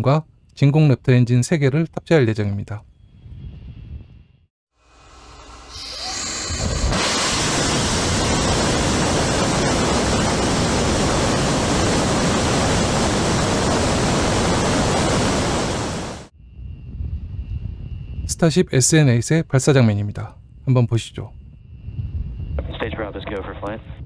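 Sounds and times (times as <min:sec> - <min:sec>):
rocket engine roaring: 0:05.1 - 0:16.3.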